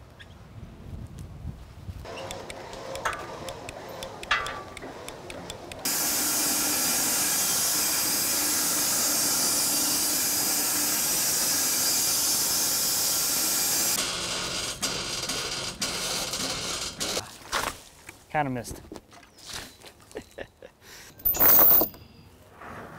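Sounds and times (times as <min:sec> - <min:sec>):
bandsaw blade cutting wood: 0:02.1 - 0:17.2.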